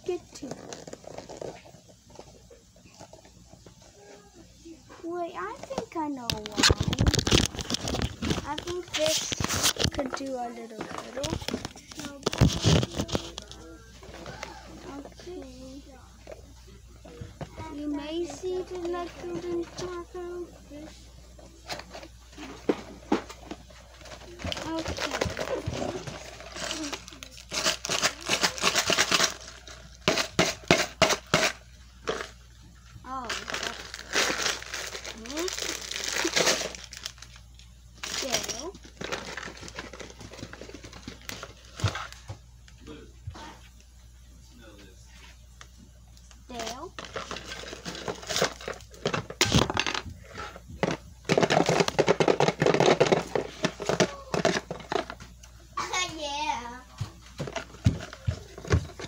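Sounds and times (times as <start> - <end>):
plastic packaging crinkling: 5.4 - 15.0, 23.3 - 32.4, 33.1 - 42.2, 46.5 - 50.0, 50.8 - 55.2.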